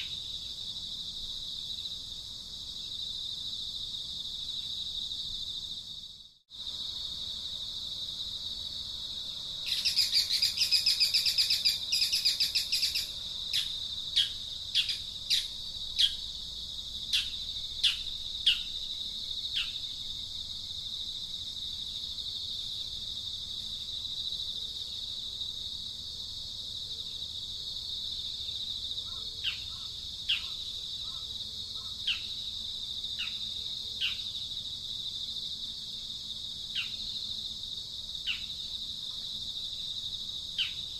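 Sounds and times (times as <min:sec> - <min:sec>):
high-pitched insect drone: 0:09.2 - 0:20.3.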